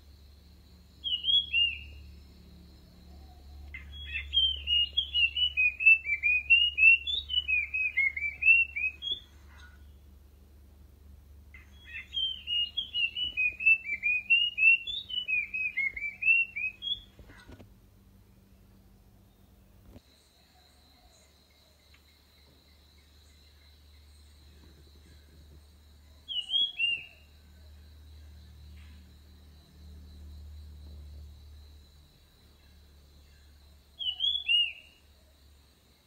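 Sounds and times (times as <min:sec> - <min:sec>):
bird whistled song: 0:01.0 - 0:02.2, 0:03.1 - 0:09.8, 0:11.6 - 0:17.6, 0:26.2 - 0:27.3, 0:33.2 - 0:35.0.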